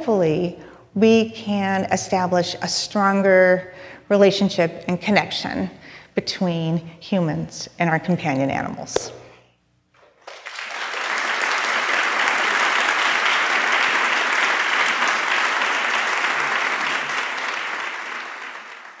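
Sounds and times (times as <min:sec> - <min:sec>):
audience applauding: 0:10.1 - 0:19.0.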